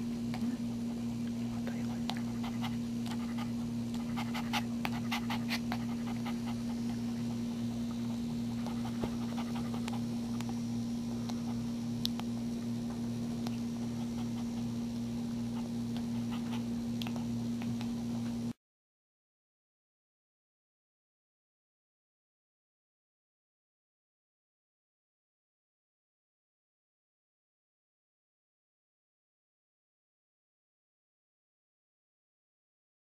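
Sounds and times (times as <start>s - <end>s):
steady low hum: 0.0s - 18.6s
dog panting: 0.9s - 10.6s, 13.5s - 17.9s.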